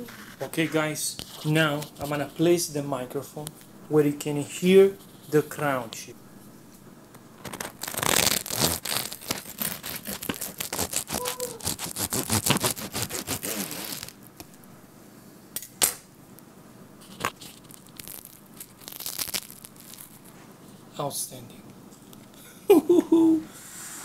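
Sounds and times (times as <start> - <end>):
knife cutting crisp bread crust: 7.9 - 14.1.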